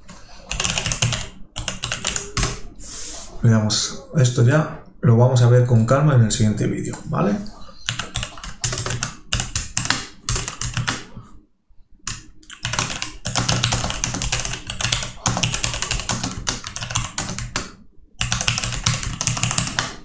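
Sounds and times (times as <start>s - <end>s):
fast typing on keyboard: 0.4s - 2.7s, 7.9s - 11.2s, 12.1s - 20.0s.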